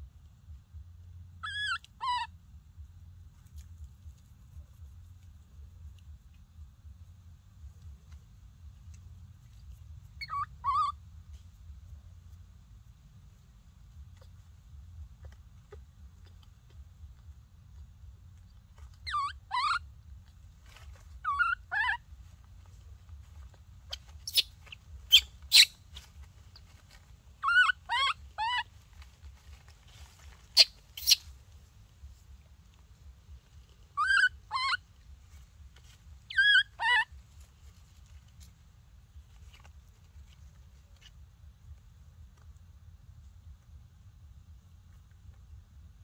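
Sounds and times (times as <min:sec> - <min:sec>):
baby monkey crying: 0:01.4 - 0:02.3, 0:10.2 - 0:11.0, 0:18.9 - 0:19.9, 0:21.2 - 0:22.1, 0:23.9 - 0:26.1, 0:27.4 - 0:28.8, 0:30.5 - 0:31.3, 0:34.0 - 0:34.9, 0:36.3 - 0:37.2.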